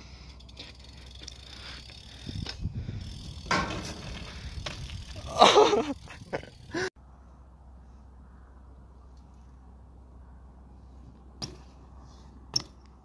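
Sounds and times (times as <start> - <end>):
bike rattling: 0.2 - 6.9
bike tyre rumble on concrete: 0.3 - 6.9.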